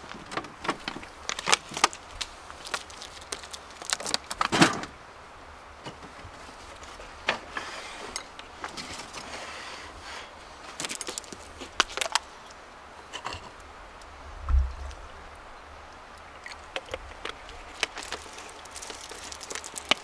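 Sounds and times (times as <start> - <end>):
scraping rustle: 5.8 - 12.3, 17.1 - 20.0.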